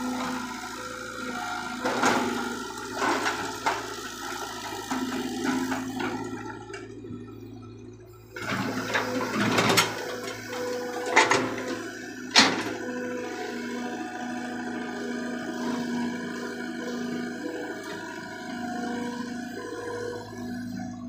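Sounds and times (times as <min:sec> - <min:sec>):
excavator engine humming: 0:00.0 - 0:21.0.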